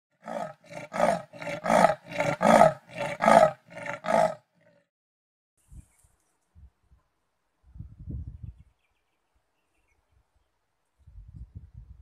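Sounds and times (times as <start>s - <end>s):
leopard harsh grunts: 0.2s - 4.8s.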